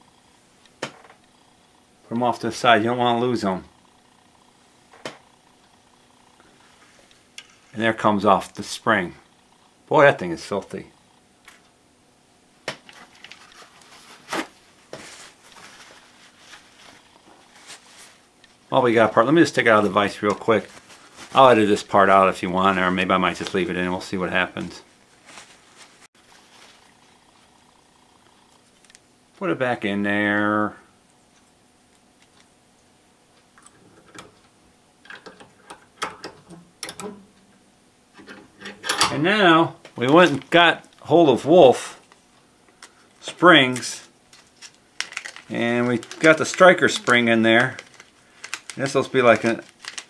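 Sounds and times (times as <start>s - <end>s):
cloth rustling while wiping: 13.0s - 23.7s, 24.6s - 27.4s.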